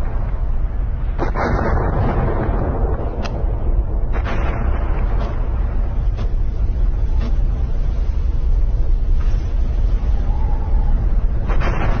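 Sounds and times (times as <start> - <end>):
sharp cracks: 0.0 - 6.6, 11.3 - 12.0
volcanic eruption rumble: 0.0 - 12.0.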